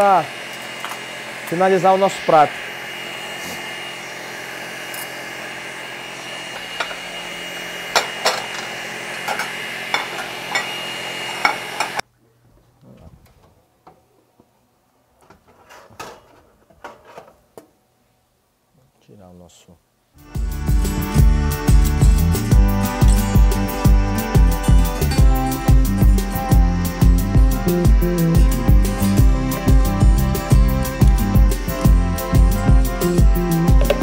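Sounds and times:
plates and utensils clinking: 7.9 - 12.0.

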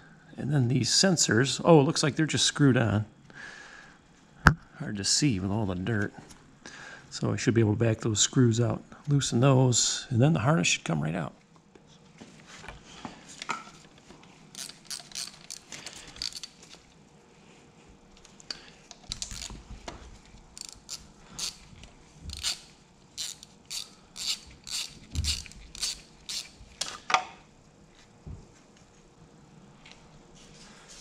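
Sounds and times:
ratchet wrench clicking: 14.5 - 16.6, 20.6 - 21.6, 22.3 - 26.6.

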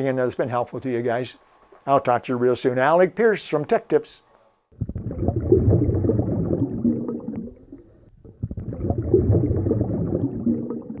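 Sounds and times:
air bubbles gurgling in water: 4.7 - 11.0.

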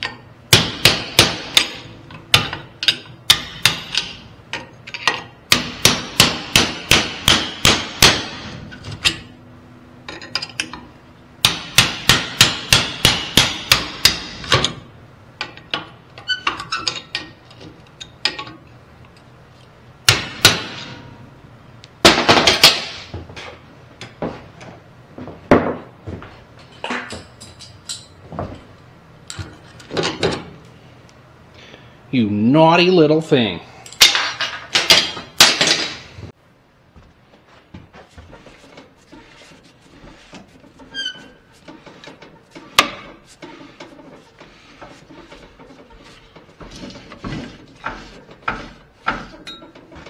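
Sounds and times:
hammer striking steel punch: 0.5 - 2.6, 5.5 - 8.5, 11.4 - 14.8, 20.1 - 21.0.

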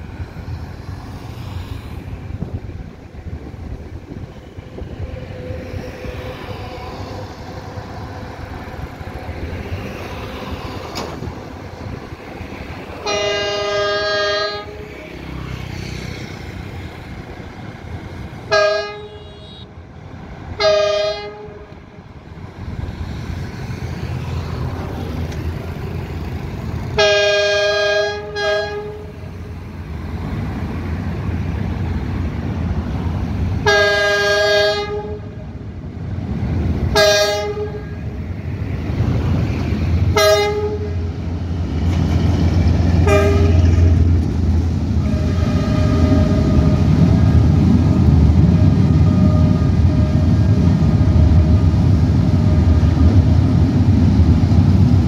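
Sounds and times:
oncoming train rumble: 0.0 - 55.0
street traffic rumble: 0.0 - 55.0
locomotive air horn blasts: 13.0 - 14.9, 18.5 - 19.7, 20.6 - 21.8, 27.0 - 29.3, 33.6 - 35.4, 36.9 - 38.1, 40.2 - 41.0, 43.0 - 44.0, 45.0 - 50.8.

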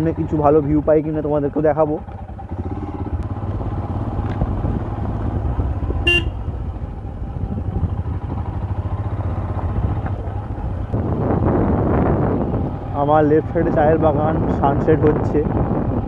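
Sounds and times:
motorcycle engine running: 0.0 - 16.0
horn beep: 6.0 - 6.4.

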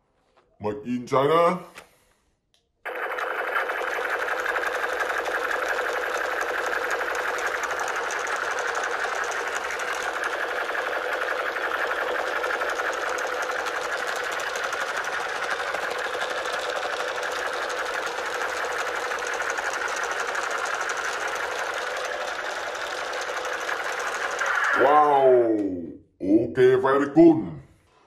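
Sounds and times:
toy gun rattling buzz: 2.8 - 24.8.

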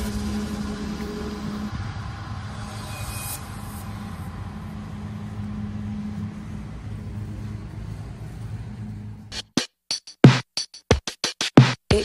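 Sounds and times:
drum-machine music: 9.3 - 12.0.

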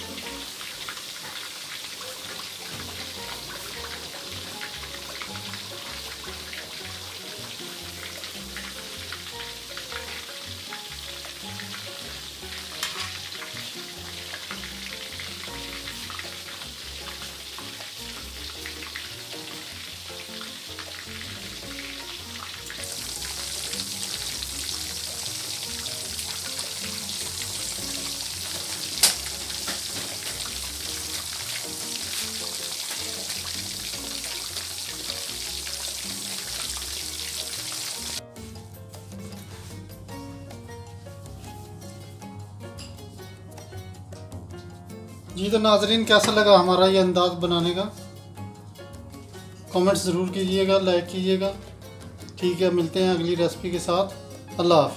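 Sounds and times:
chicken deep-frying in oil: 0.0 - 38.2.

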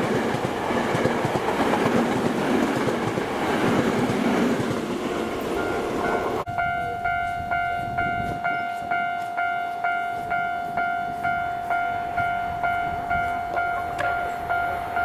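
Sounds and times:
electric train rushing past: 0.0 - 15.0
level crossing alarm dinging: 5.3 - 15.0.

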